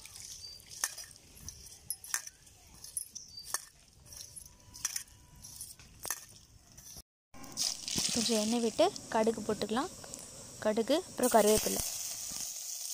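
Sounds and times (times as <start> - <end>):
metal bowl clinking: 0.1 - 6.3.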